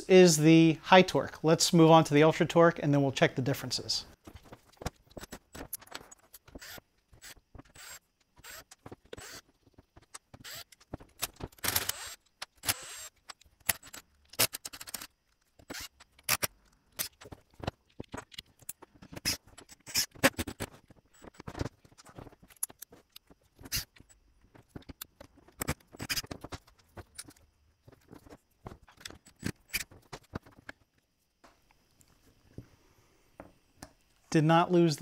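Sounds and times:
plastic and metal parts clicking: 0:04.2 - 0:31.0.

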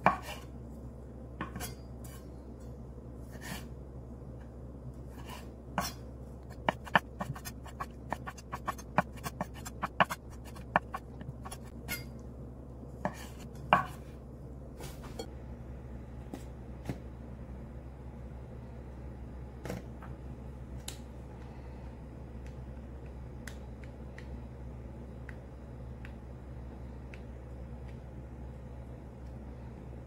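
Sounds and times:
low hum: 0:00.0 - 0:30.0
knife chopping on wooden board: 0:06.6 - 0:11.7.

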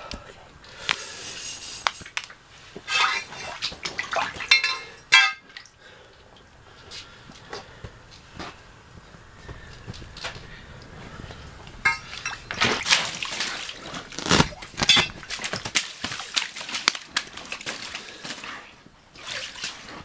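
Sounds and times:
fish splashing and slapping on ice: 0:12.1 - 0:20.0.

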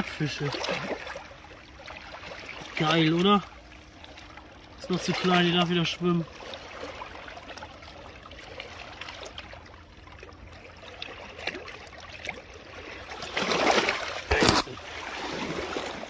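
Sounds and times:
shallow water trickling: 0:00.0 - 0:16.0
landing net splashing in water: 0:06.3 - 0:16.0.

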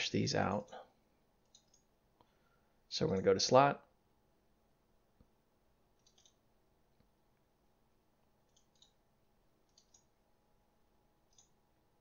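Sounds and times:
computer mouse clicks: 0:01.4 - 0:02.3, 0:06.0 - 0:06.4, 0:08.4 - 0:09.0, 0:09.6 - 0:10.1, 0:11.3 - 0:11.6.

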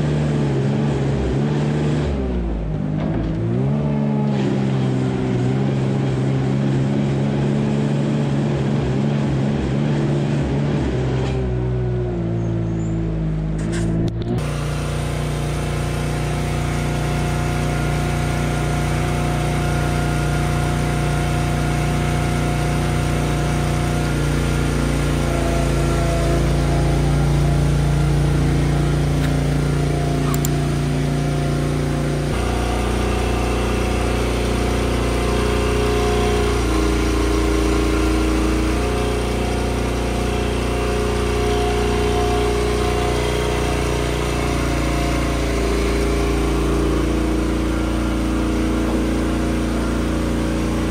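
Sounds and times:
small engine running: 0:13.5 - 0:50.9.

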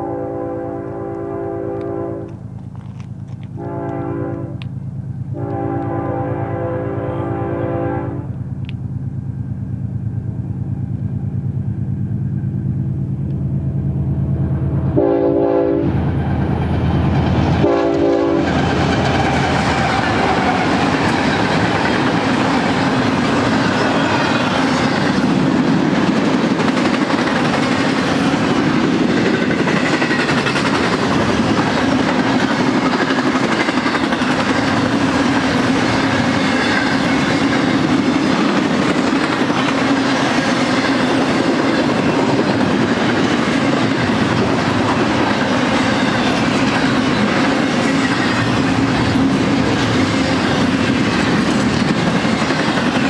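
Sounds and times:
train air horn blasts: 0:00.0 - 0:02.4, 0:03.5 - 0:04.7, 0:05.3 - 0:08.4, 0:14.9 - 0:16.0, 0:17.6 - 0:20.7
diesel locomotive engine drone: 0:00.0 - 0:53.0
train wheels clattering on rails: 0:15.9 - 0:53.0.

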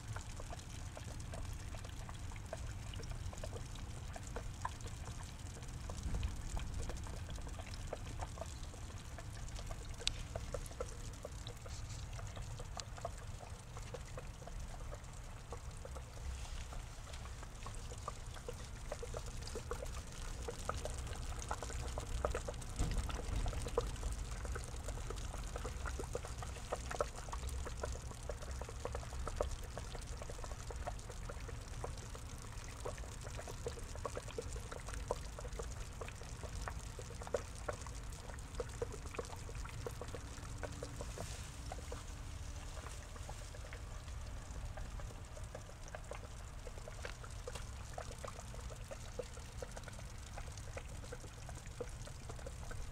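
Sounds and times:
small splashes and drips: 0:00.0 - 0:52.9
water pouring into a pond: 0:00.0 - 0:52.9.

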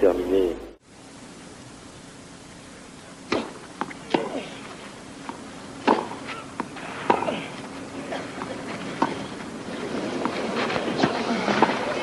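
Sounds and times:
low broadcast hum: 0:00.0 - 0:12.0
tennis ball bouncing: 0:03.3 - 0:04.6, 0:05.2 - 0:12.0
rackets striking tennis ball: 0:03.3 - 0:12.0.

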